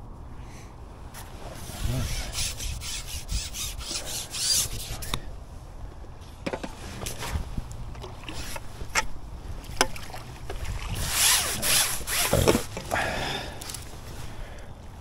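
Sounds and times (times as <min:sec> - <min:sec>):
fishing pole scraping: 0:01.2 - 0:05.3, 0:08.1 - 0:09.1, 0:10.9 - 0:12.9.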